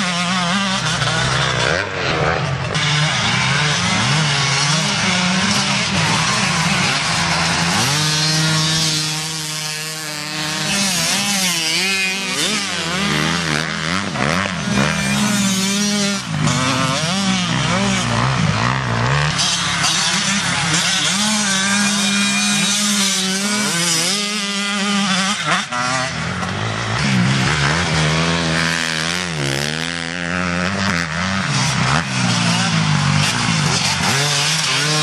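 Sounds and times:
motocross bike engines revving: 0.0s - 35.0s.

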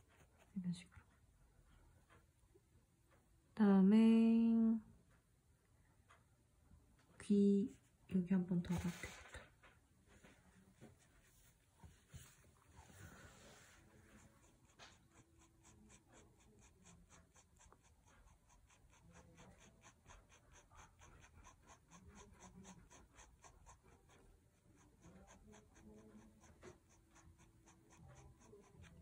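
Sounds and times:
pen scratching on paper: 14.0s - 29.0s.

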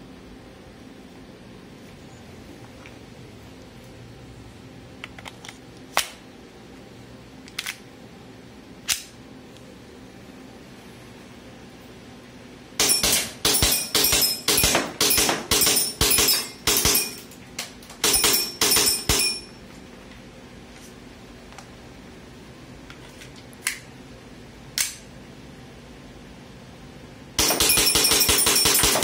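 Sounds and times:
airsoft pistol shots: 12.8s - 17.2s, 27.4s - 29.0s.

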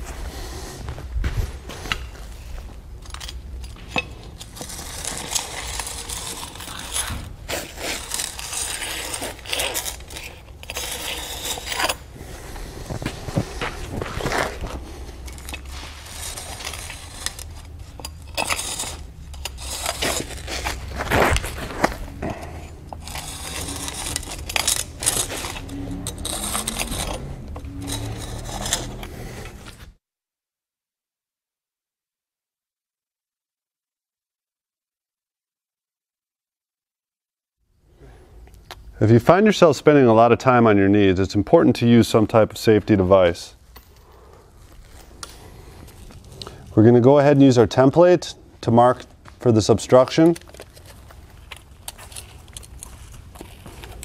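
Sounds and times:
scribe scratching pavers: 0.2s - 30.0s, 44.1s - 54.0s.

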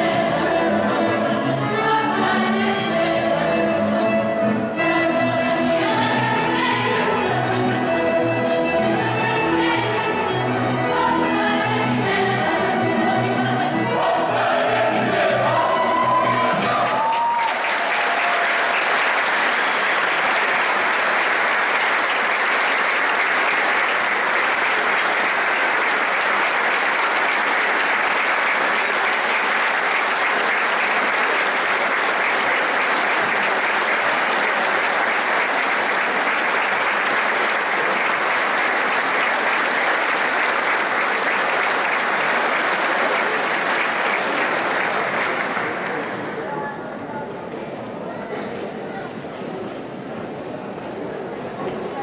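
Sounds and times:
choir singing: 0.0s - 16.9s
audience applauding: 15.2s - 46.5s.

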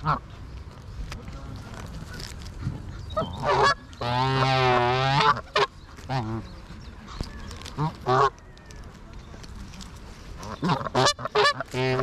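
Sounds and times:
geese honking: 3.1s - 6.5s, 7.8s - 8.4s, 10.4s - 12.0s.

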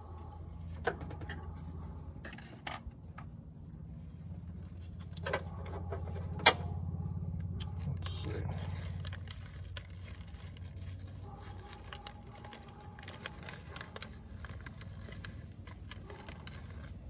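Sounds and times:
plastic bag crinkling: 8.4s - 17.0s.

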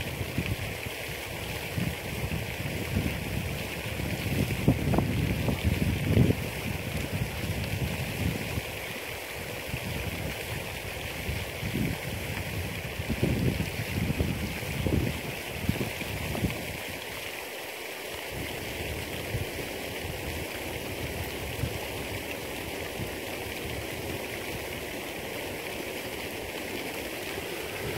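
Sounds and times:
wind buffeting microphone: 0.0s - 8.8s, 9.4s - 17.0s, 18.3s - 27.9s
wind rushing: 26.9s - 27.9s.

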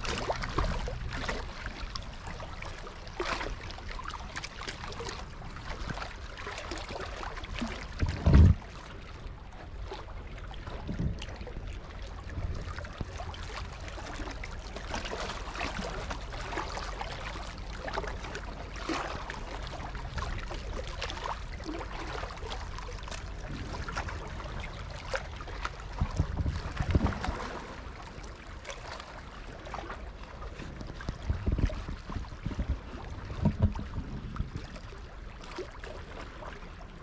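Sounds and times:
small waves lapping on rocks: 0.0s - 37.0s
wind rumble on microphone: 0.0s - 37.0s.

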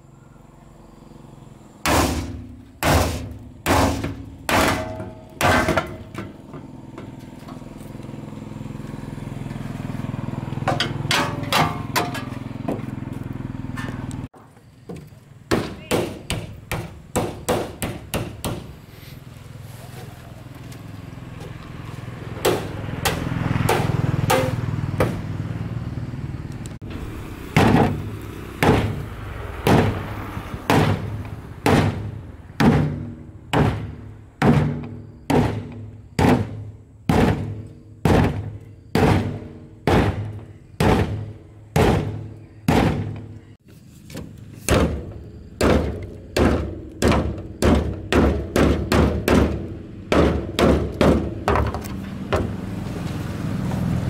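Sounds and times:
hammer pounding bolt on steel: 1.9s - 7.1s, 10.7s - 12.4s, 15.5s - 18.7s.

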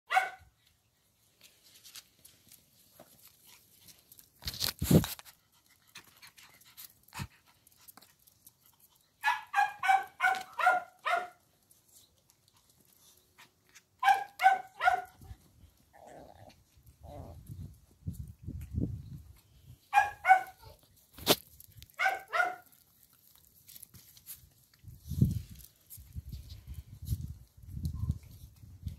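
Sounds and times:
puppy yapping: 0.1s - 0.5s, 9.2s - 11.4s, 14.0s - 15.1s, 20.0s - 20.8s, 22.0s - 22.7s.

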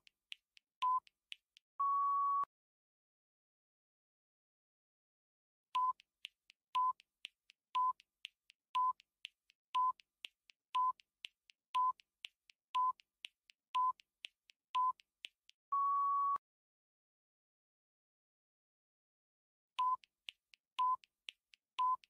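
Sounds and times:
soft ticks: 0.0s - 1.6s, 5.8s - 15.6s, 19.8s - 22.0s.

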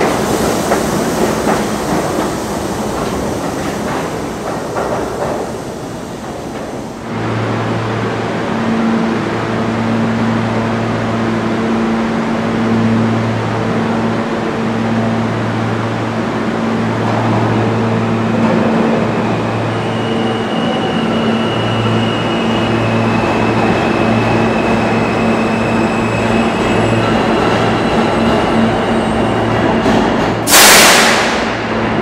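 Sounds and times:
subway train slowing to a stop: 0.0s - 32.0s
brake air hiss: 30.5s - 31.4s.

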